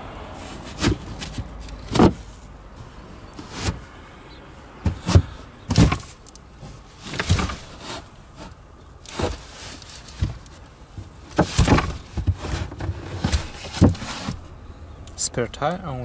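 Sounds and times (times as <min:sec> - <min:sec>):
car trim panels knocking: 0:04.8 - 0:06.1.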